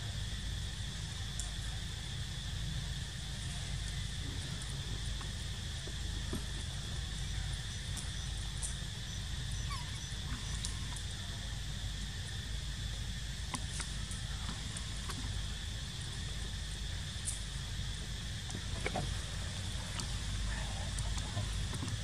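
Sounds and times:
constant low rumble: 0.0 - 22.0.

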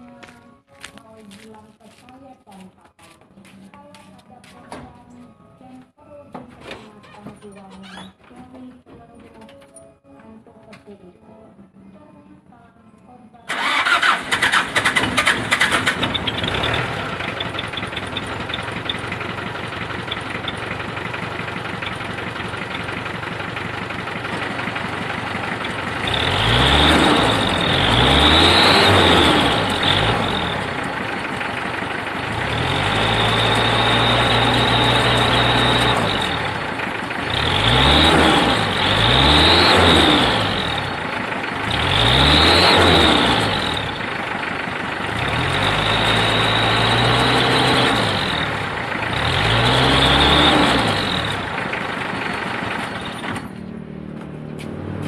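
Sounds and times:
diesel engine idling and revving: 13.5 - 55.0.

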